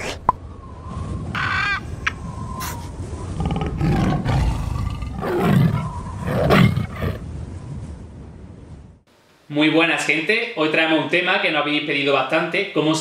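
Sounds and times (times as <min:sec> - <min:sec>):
tiger roaring: 0:03.3 - 0:07.2.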